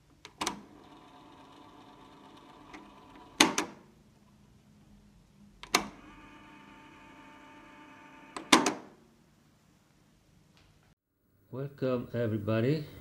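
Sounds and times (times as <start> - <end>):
tape motor whirring: 0.3 - 3.7, 5.7 - 8.8.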